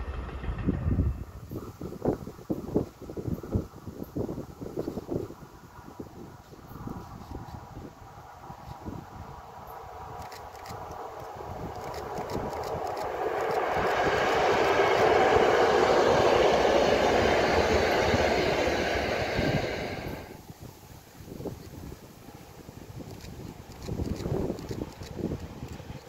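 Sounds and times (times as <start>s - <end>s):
diesel locomotive passing: 0.0s - 20.7s.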